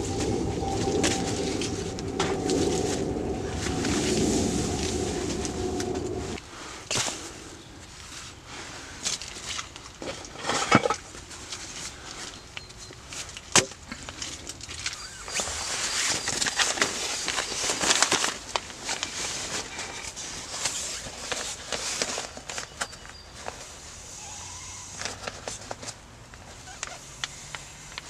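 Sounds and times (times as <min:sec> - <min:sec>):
nylon sleeping pad crinkling: 0:13.1 - 0:28.0.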